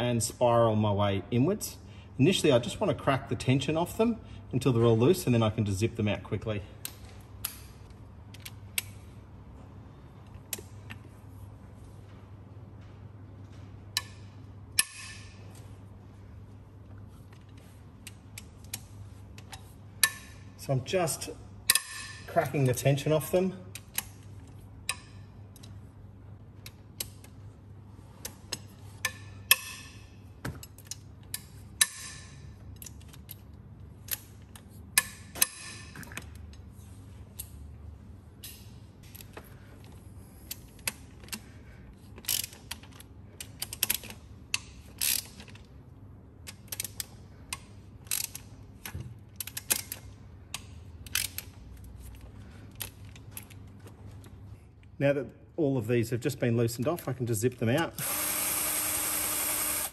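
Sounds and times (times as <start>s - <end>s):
ratchet wrench clicking: 42.2s - 45.6s, 46.4s - 51.6s, 58.0s - 59.9s.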